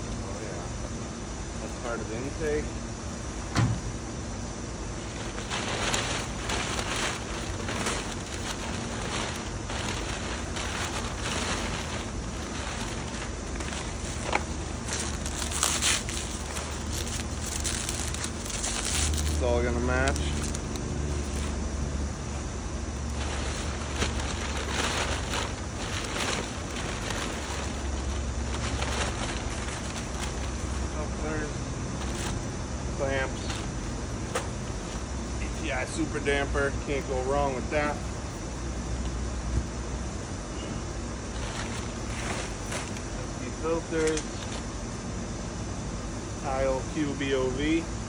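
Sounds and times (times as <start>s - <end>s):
steady low hum: 0.0s - 48.0s
packing paper rustling and crinkling: 5.0s - 36.1s, 41.3s - 44.7s.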